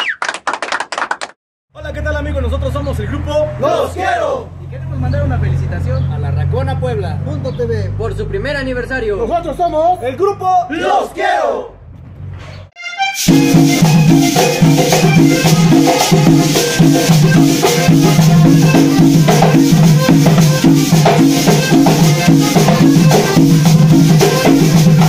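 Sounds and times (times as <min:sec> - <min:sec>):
piano accordion: 0:12.8 - 0:25.0
hand percussion shaking and scraping: 0:13.2 - 0:25.0
bass pattern: 0:13.3 - 0:25.0.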